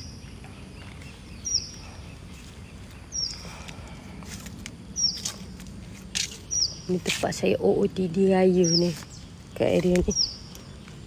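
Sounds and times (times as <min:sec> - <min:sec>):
bird calling: 0:00.0 - 0:04.0, 0:05.0 - 0:05.5, 0:06.3 - 0:07.6, 0:08.2 - 0:11.0.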